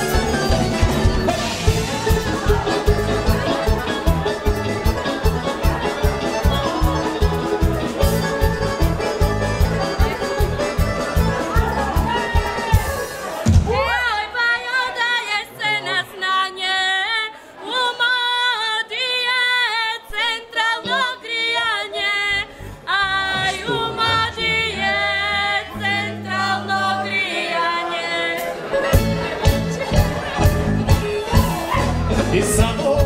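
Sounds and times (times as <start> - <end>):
bass line: 0.0 - 14.0, 22.3 - 27.3, 28.8 - 33.0
drums: 0.0 - 14.4, 28.4 - 33.0.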